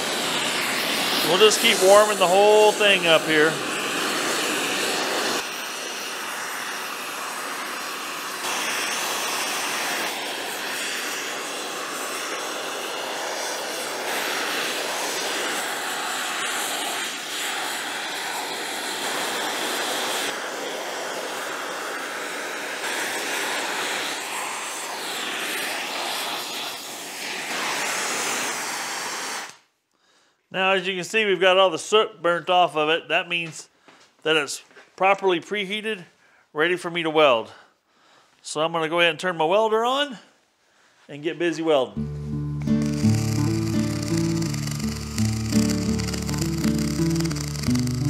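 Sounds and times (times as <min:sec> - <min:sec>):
torch flame hissing: 0:00.0 - 0:29.6, 0:42.6 - 0:48.0.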